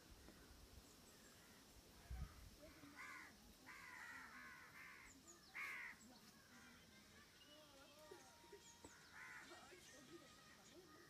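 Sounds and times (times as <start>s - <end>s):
distant crow cawing: 2.7s - 6.0s, 9.0s - 9.5s.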